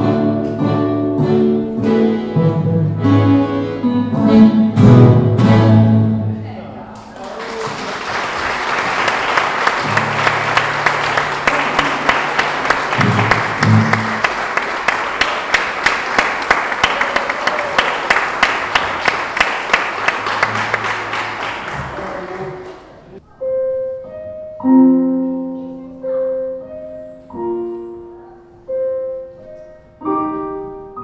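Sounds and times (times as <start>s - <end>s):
audience applauding rhythmically: 7.0s - 23.2s.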